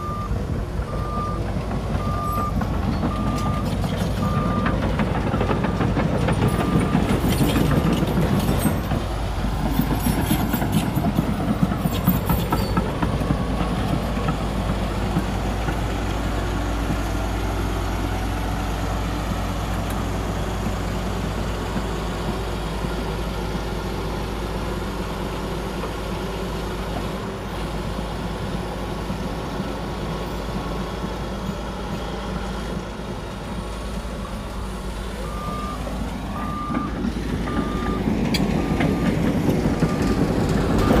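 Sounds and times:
reversing alarm beeping: 0:00.0 - 0:04.8, 0:06.5 - 0:08.0, 0:35.2 - 0:40.2
diesel earthmoving machinery running: 0:00.0 - 0:41.0.

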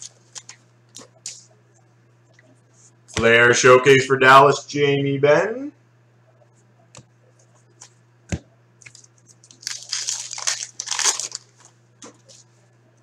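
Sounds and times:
wrapper crinkling and tearing: 0:08.9 - 0:11.8.

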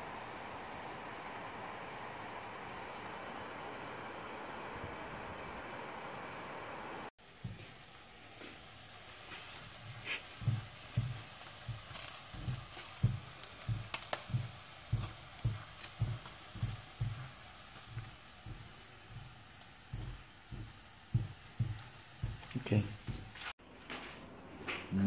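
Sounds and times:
vegetables sizzling in a pan: 0:07.2 - 0:23.6
spatula knocking against a pan: 0:10.4 - 0:23.3.

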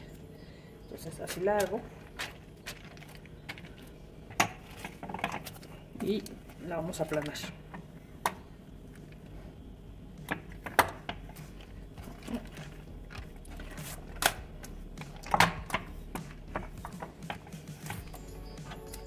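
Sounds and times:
wooden tortilla press knocking: 0:10.2 - 0:18.0.

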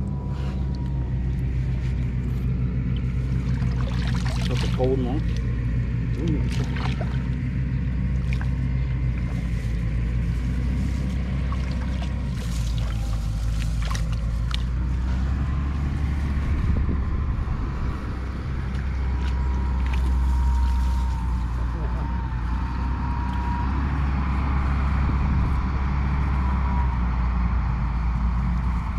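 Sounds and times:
small engine droning: 0:00.0 - 0:28.9
light water splashes: 0:02.8 - 0:10.0, 0:10.8 - 0:15.0, 0:18.6 - 0:21.3.

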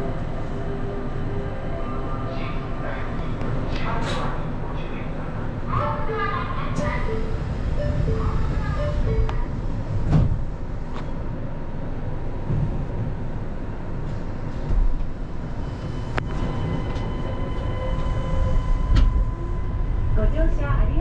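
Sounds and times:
train tyres rumbling: 0:05.6 - 0:21.0.

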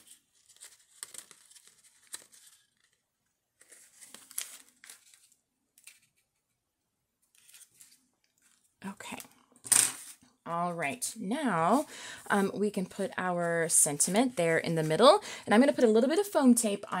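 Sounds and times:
paper rustling and crinkling: 0:00.0 - 0:06.6, 0:07.3 - 0:08.7.

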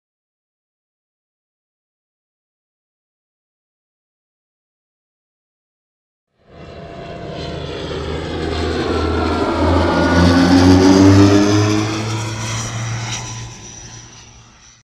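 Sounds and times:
droning engine-like hum: 0:06.4 - 0:14.8.

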